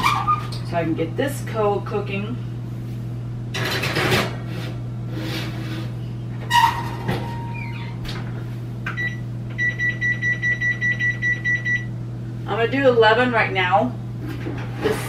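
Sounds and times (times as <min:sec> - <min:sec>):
oven timer beeping rapidly: 0:08.9 - 0:11.9.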